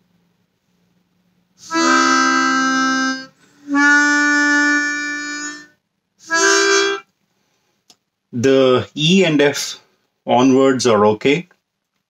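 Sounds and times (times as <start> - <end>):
harmonica held notes: 1.6 - 7.1.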